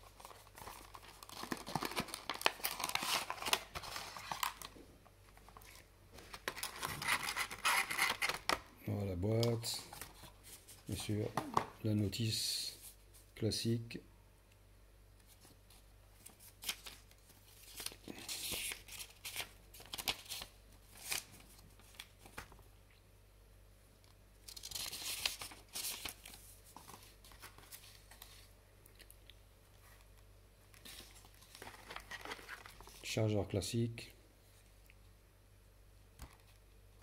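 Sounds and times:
paper rustling and crinkling: 0.0s - 8.6s, 15.2s - 22.7s, 24.4s - 28.6s, 30.7s - 33.1s.

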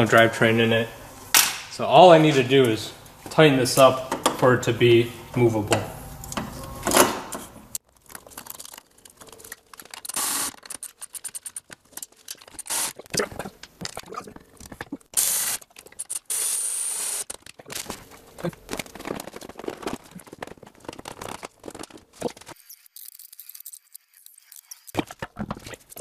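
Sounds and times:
parts clicking and rattling: 6.9s - 26.0s.

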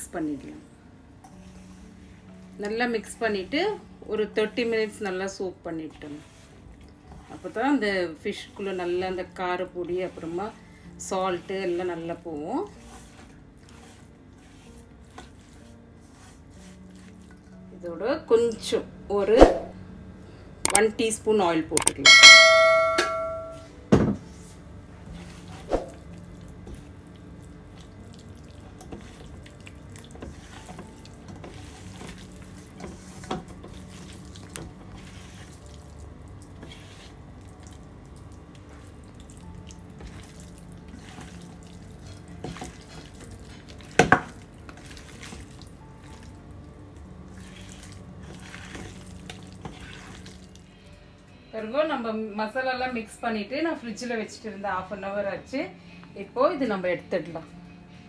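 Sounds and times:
bell-like notification chime: 22.0s - 23.7s
wet squelching of marinade: 26.0s - 46.4s, 47.0s - 50.7s.

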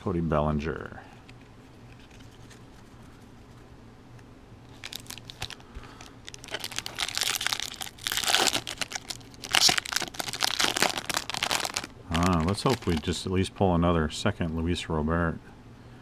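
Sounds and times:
plastic wrapper crinkling and tearing: 4.7s - 13.2s.

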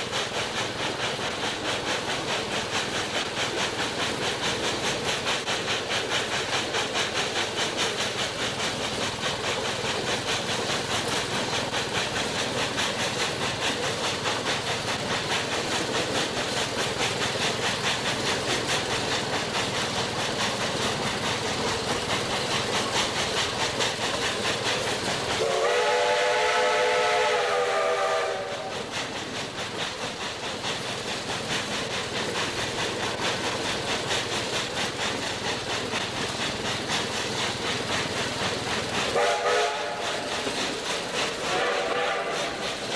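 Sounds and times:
steam hissing: 0.0s - 42.9s
steam locomotive chuffing: 0.0s - 42.9s
steam whistle blast: 25.4s - 28.8s, 39.1s - 40.2s, 41.5s - 42.6s.

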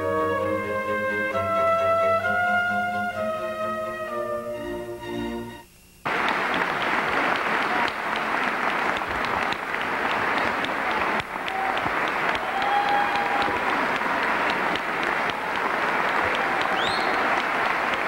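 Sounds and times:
crowd applauding: 6.0s - 18.0s.

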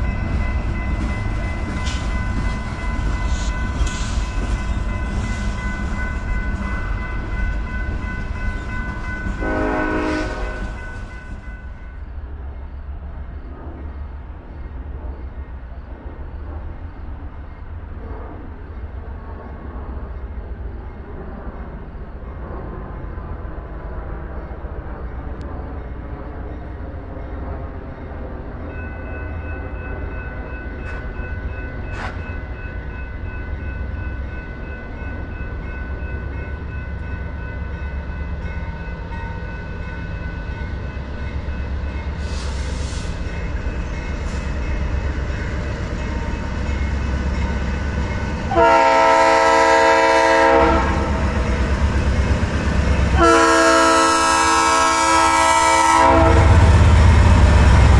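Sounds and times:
train rumbling: 0.0s - 57.9s
locomotive multi-note horn: 9.4s - 10.8s, 48.5s - 51.2s, 53.2s - 56.7s.

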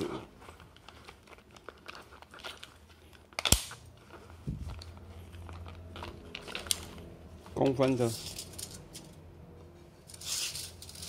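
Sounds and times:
tape measure handling rustle: 4.0s - 9.2s, 10.1s - 11.0s.

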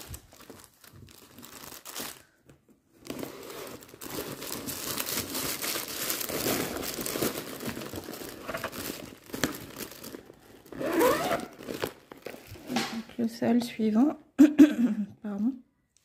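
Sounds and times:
plastic pouch crinkling: 0.0s - 12.8s.

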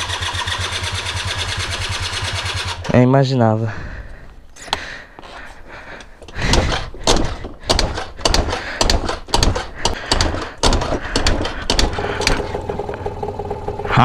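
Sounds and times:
scooter engine running: 0.0s - 2.8s, 10.1s - 14.0s
scooter kick-start knocks: 6.5s - 13.8s.

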